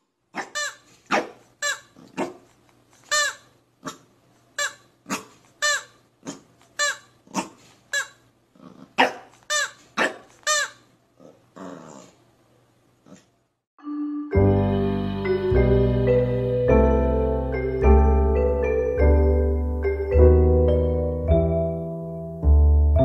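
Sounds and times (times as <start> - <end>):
puppy yapping: 0.4 - 2.5, 3.2 - 12.2.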